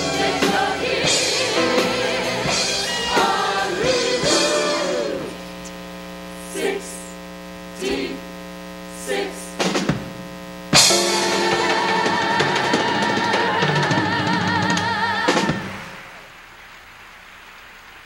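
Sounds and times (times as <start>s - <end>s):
full band playing loudly: 0.0s - 5.4s, 10.8s - 16.0s.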